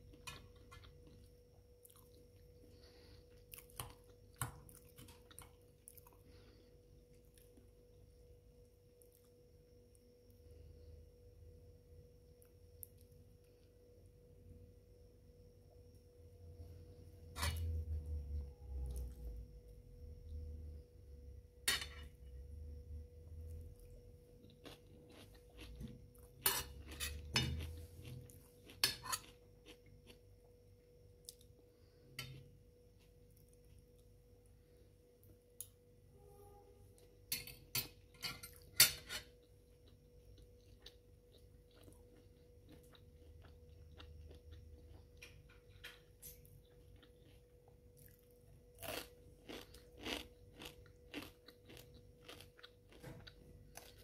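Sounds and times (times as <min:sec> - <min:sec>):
faint steady hum: 0:00.0 - 0:54.0
cutlery scraping ceramic plate: 0:26.4 - 0:27.7, 0:28.8 - 0:29.2.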